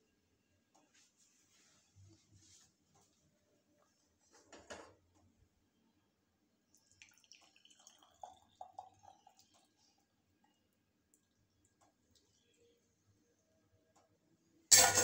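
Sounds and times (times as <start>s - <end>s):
liquid trickling into a cup: 6.7s - 12.7s.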